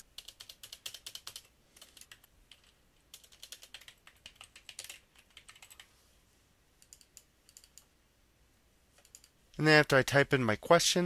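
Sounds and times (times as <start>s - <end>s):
computer keyboard typing: 0.0s - 5.9s, 6.8s - 7.9s, 9.0s - 9.4s.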